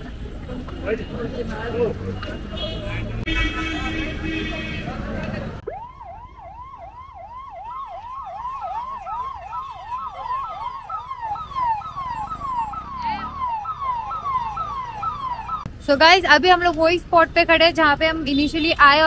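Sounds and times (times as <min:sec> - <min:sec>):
traffic noise: 0:00.0 - 0:19.0
emergency vehicle siren: 0:05.6 - 0:15.7.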